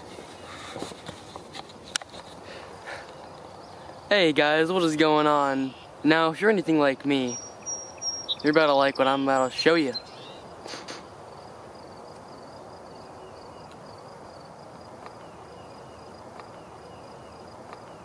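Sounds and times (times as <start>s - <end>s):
high pulsing insect trill: 2.4s - 18.0s
falling bird chirps: 7.1s - 11.1s.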